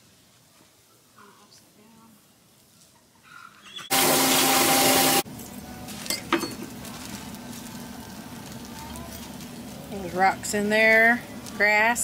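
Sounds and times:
water spraying from hose: 0:03.9 - 0:05.2.

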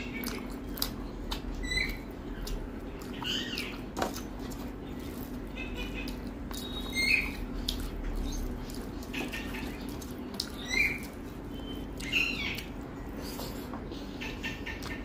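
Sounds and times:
steady low hum: 0:00.0 - 0:15.0
small animal high-pitched calls: 0:01.6 - 0:02.1, 0:10.6 - 0:12.8.

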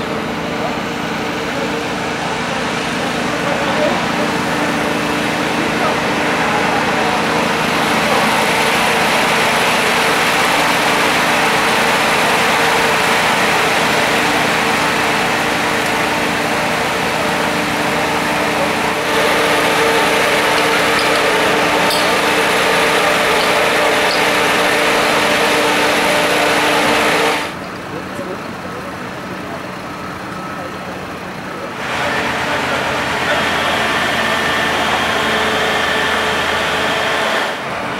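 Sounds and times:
motor running: 0:00.0 - 0:28.4, 0:29.6 - 0:37.9.

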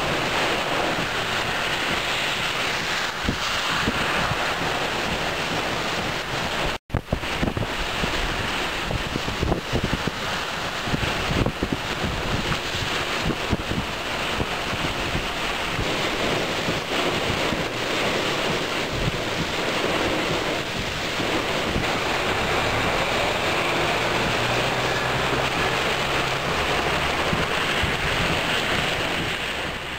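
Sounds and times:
heavy rain hissing: 0:00.0 - 0:29.9
wind gusts buffeting microphone: 0:00.0 - 0:29.9.

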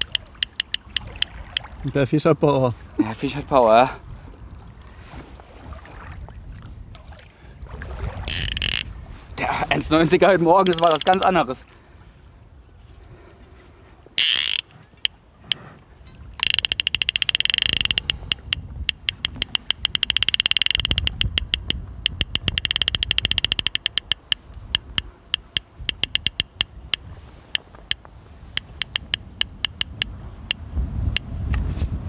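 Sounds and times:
fishing reel drag clicking: 0:00.0 - 0:01.3, 0:08.3 - 0:08.9, 0:10.6 - 0:11.3, 0:14.2 - 0:15.6, 0:16.4 - 0:27.6, 0:28.6 - 0:30.6.

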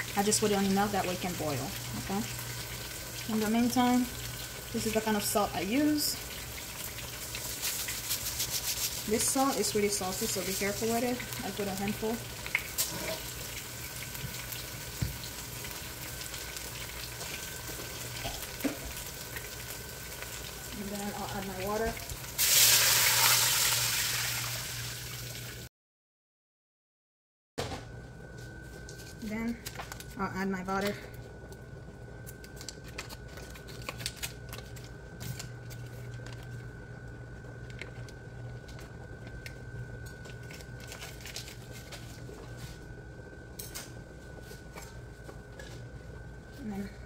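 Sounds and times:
onions sizzling in oil: 0:00.0 - 0:25.7
faint steady hum: 0:27.7 - 0:47.0.

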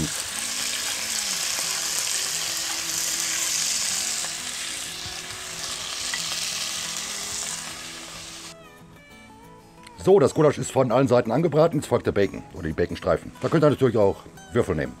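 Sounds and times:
meat sizzling in hot oil: 0:00.0 - 0:08.6.

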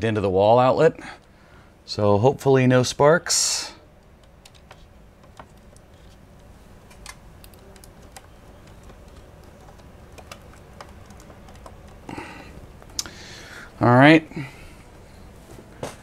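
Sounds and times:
low steady hum: 0:00.0 - 0:16.0
hands tapping laptop keys and case: 0:04.1 - 0:13.0.

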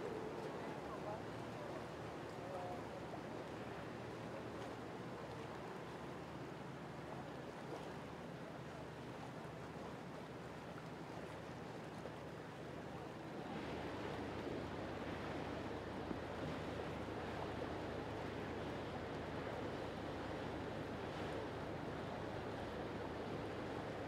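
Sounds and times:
water and waves washing: 0:00.0 - 0:24.0
boat engine humming: 0:12.2 - 0:24.0.

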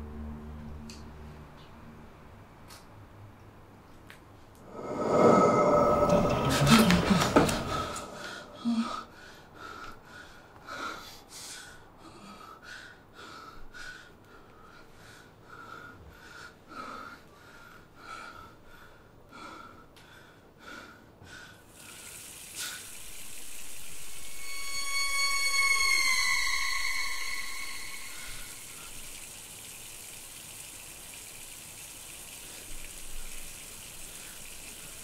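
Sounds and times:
high droning tone: 0:04.6 - 0:09.0, 0:22.9 - 0:29.1.

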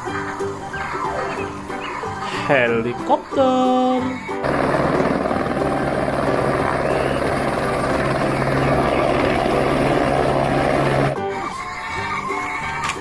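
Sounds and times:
helicopter hovering: 0:04.0 - 0:11.8.

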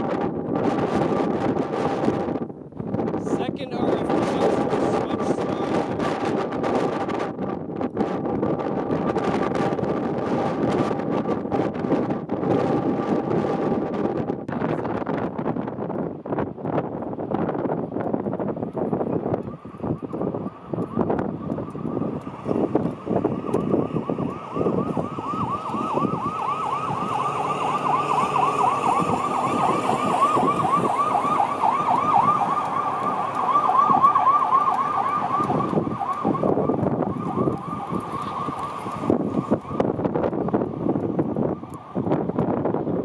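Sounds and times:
wind buffeting microphone: 0:00.0 - 0:43.0
yelping siren: 0:19.0 - 0:42.5.

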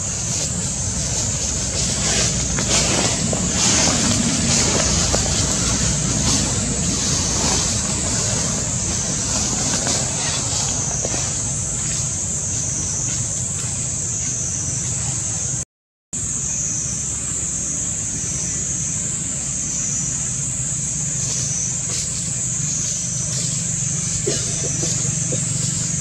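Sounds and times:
low rumble: 0:00.0 - 0:12.4
high-pitched hiss: 0:00.0 - 0:15.6, 0:16.2 - 0:26.0.

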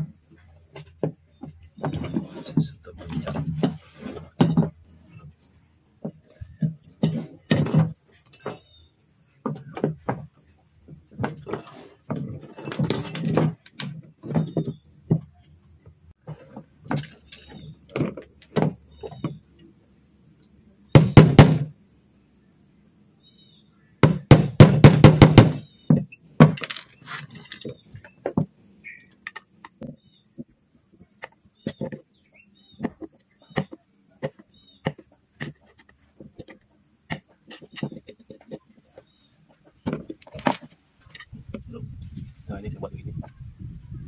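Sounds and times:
tools knocking on wood: 0:04.4 - 0:04.8, 0:21.0 - 0:21.7, 0:24.0 - 0:26.8.

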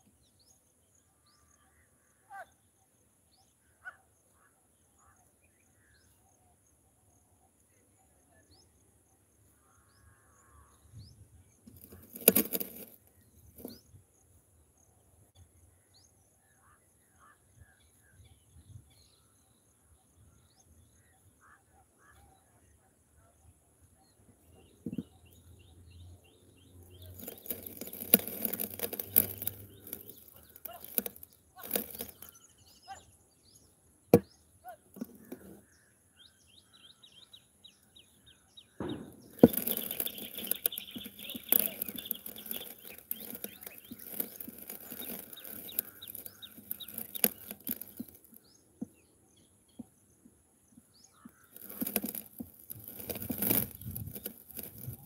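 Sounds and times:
crackling noise: 0:11.7 - 0:13.8, 0:26.7 - 0:32.4, 0:38.8 - 0:48.4, 0:51.3 - 0:55.0
small birds chirping: 0:24.1 - 0:55.0.

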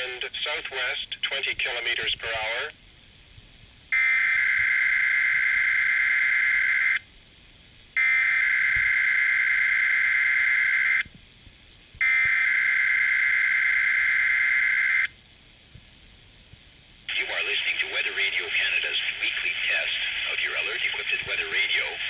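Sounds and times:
radio hiss: 0:00.0 - 0:02.8, 0:17.1 - 0:22.0.

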